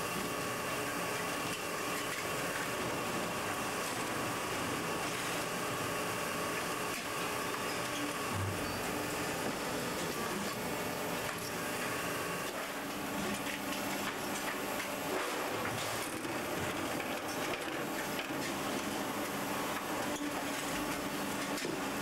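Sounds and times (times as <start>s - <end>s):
factory machinery drone: 2.4s - 13.4s.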